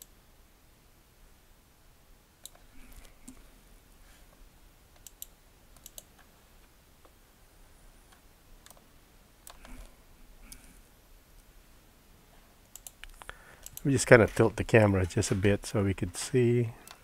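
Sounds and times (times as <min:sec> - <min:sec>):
computer mouse clicks: 0:02.4 - 0:03.4, 0:05.0 - 0:06.3, 0:08.1 - 0:09.9, 0:10.5 - 0:10.8, 0:12.6 - 0:13.9
keyboard clicks: 0:05.0 - 0:06.3, 0:09.4 - 0:09.9, 0:12.6 - 0:14.4.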